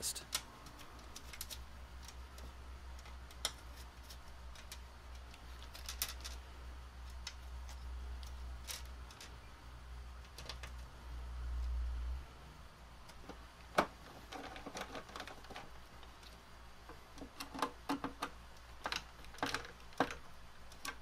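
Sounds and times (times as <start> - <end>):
small metal parts clicking: 0.3 - 9.5, 17.1 - 21.0.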